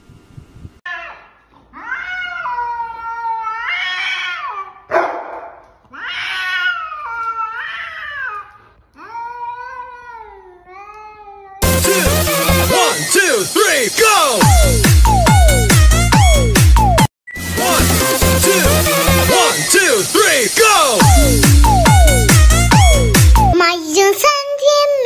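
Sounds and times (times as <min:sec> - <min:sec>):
cat yowling: 0:00.9 - 0:04.9, 0:05.9 - 0:10.2.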